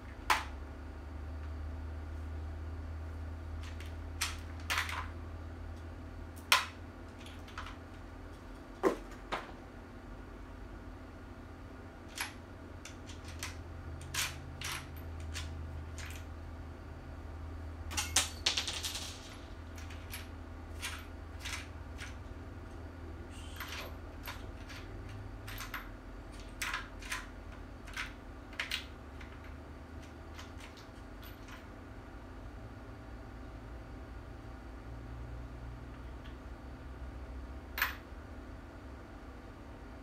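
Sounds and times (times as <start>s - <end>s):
small parts clicking and clinking: 3.6s - 5.2s, 5.8s - 8.0s, 12.1s - 16.3s, 17.9s - 22.3s, 23.4s - 31.7s.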